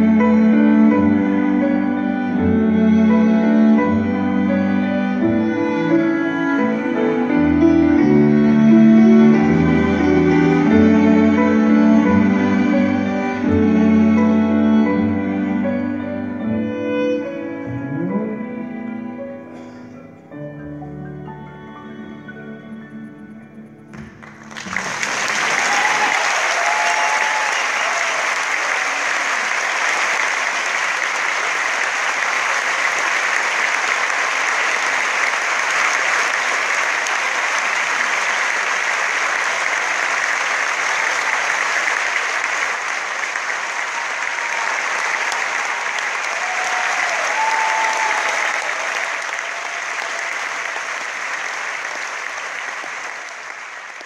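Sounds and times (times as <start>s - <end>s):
audience applauding: 24.0s - 54.0s.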